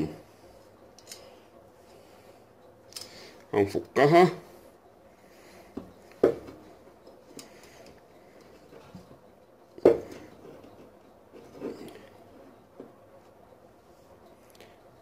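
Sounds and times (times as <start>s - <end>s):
metal pliers clicking: 1.0s - 1.3s.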